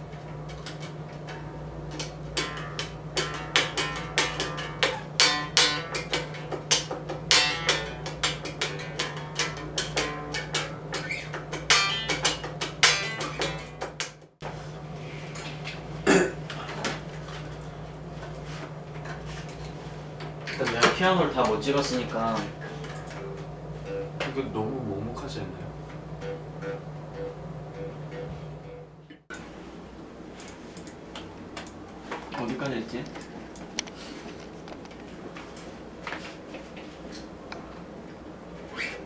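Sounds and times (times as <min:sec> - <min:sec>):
electric bass notes: 0:00.0 - 0:14.3, 0:20.2 - 0:29.2
steady low hum: 0:00.0 - 0:39.0.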